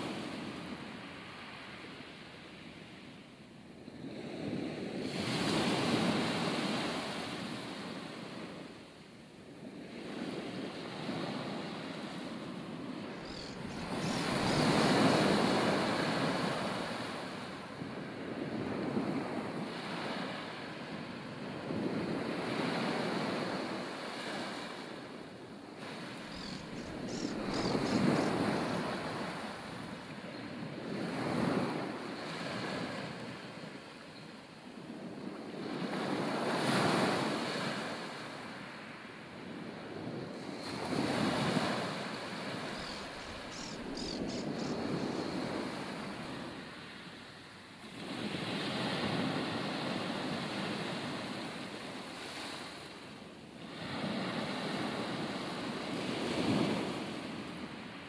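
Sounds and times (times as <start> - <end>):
surf washing on beach: 0.0 - 58.0
wind on microphone: 9.5 - 38.2, 39.4 - 47.2.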